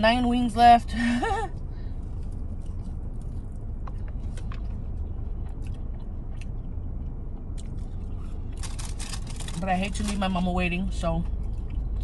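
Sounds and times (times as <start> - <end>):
air conditioning hum: 0.0 - 12.0
person chewing crunchy food: 2.0 - 9.6.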